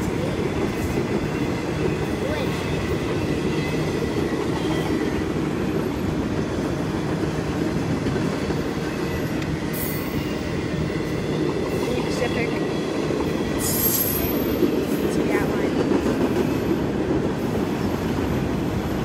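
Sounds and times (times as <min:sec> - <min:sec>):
steel wheels rumbling on rail: 0:00.0 - 0:19.0
high wheel squeal: 0:13.4 - 0:14.6.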